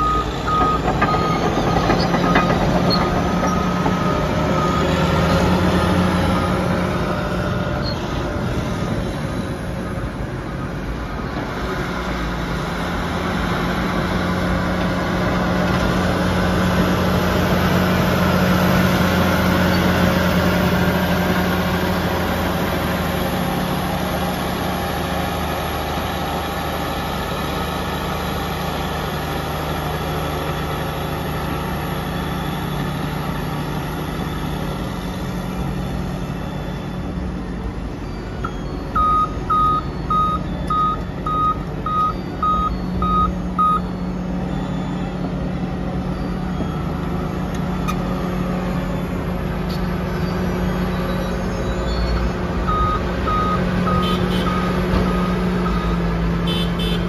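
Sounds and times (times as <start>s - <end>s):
bulldozer diesel engine running: 0.0s - 57.0s
back-up alarm beeping: 34.2s - 49.2s, 51.8s - 57.0s.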